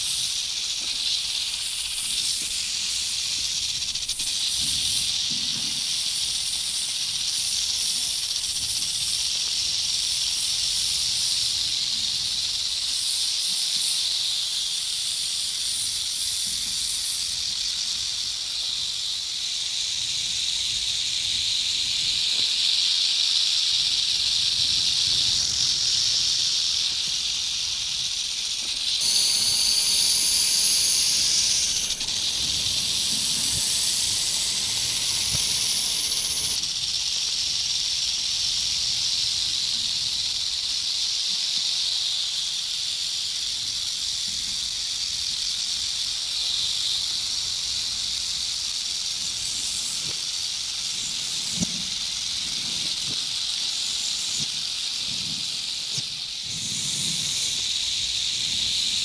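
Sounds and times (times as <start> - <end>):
snake hissing: 0.0 - 59.0.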